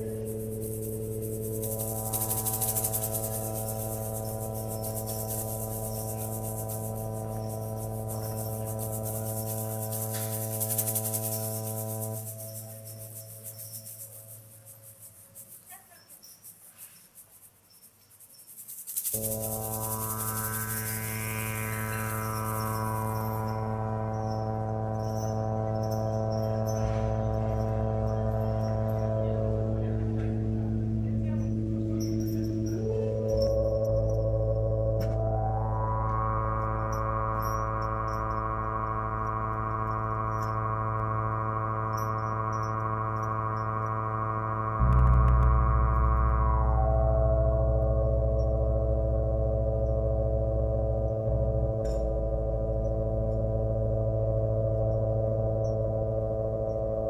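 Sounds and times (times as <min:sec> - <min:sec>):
guitars and keyboards drone: 0:00.0 - 0:13.9, 0:19.2 - 0:57.0
low bass note: 0:00.0 - 0:13.9, 0:19.2 - 0:57.0
hand rattle shaken: 0:00.2 - 0:21.7.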